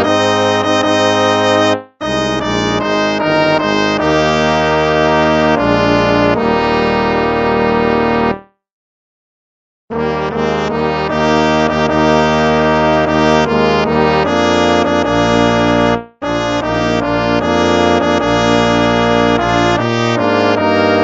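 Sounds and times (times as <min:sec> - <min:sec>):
brass instruments playing hymn: 0:00.0 - 0:08.4, 0:10.0 - 0:21.0.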